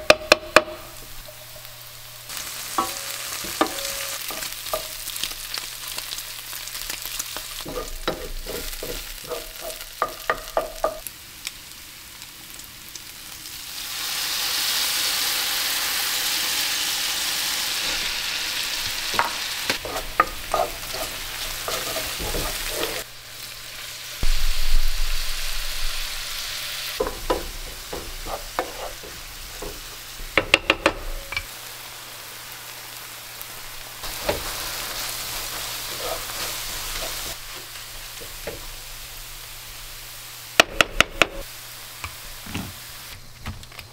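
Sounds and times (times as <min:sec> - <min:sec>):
food sizzling in a pan: 0:00.0 - 0:43.2
wooden spatula knocking pan: 0:02.8 - 0:04.9, 0:07.7 - 0:11.0, 0:27.0 - 0:31.5.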